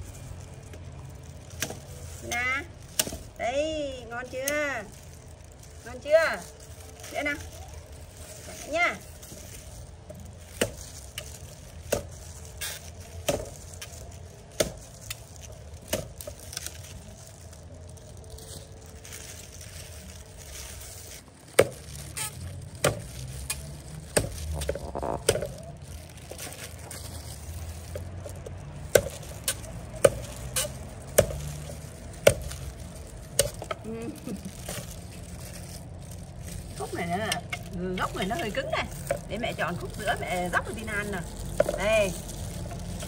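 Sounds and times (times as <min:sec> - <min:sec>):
cleaver chopping sugarcane: 0:01.5 - 0:03.4, 0:10.4 - 0:16.9, 0:20.9 - 0:34.0.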